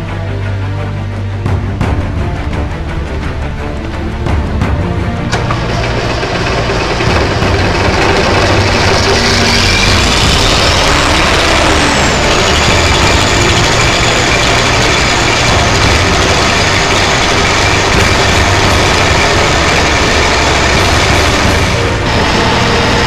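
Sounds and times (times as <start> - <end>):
diesel engine running: 4.0 - 23.0
turbocharger whistle: 5.3 - 23.0.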